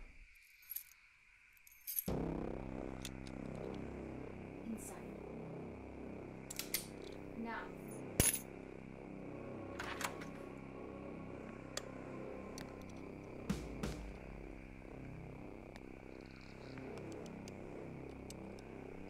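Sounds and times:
keys clinking on countertop: 1.7 - 2.1.

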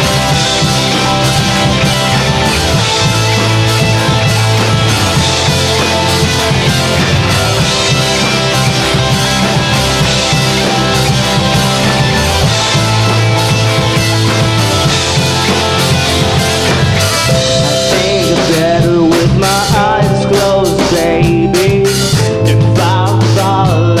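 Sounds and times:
wavering melody line: 0.0 - 22.4
bass guitar: 0.0 - 24.0
drum kit: 0.0 - 24.0
electric guitar: 0.0 - 24.0.

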